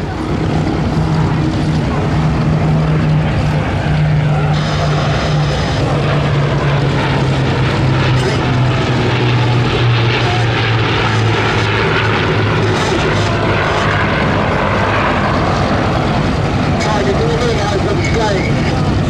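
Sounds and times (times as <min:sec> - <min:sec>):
propeller plane engine drone: 0:00.0 - 0:19.0.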